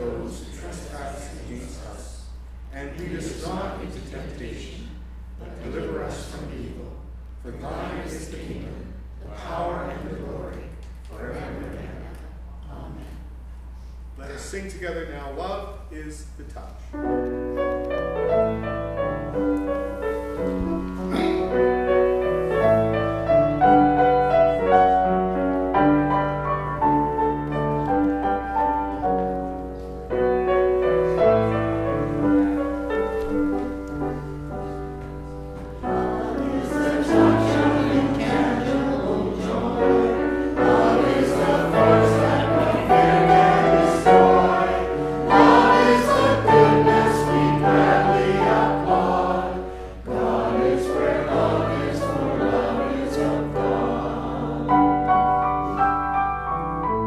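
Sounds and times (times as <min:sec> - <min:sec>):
grand piano playing: 0:00.0 - 0:02.0, 0:16.9 - 0:57.0
congregation singing a hymn: 0:00.0 - 0:13.1, 0:18.3 - 0:56.2.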